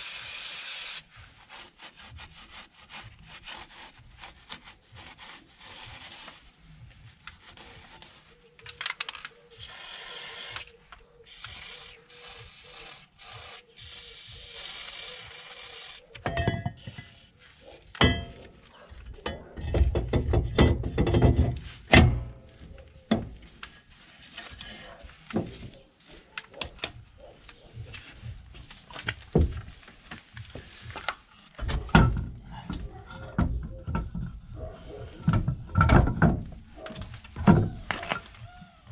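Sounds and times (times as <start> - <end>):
cloth rubbing on metal hub: 0.8 - 8.6, 10.6 - 18.8
metal clinks and scrapes: 16.1 - 22.4.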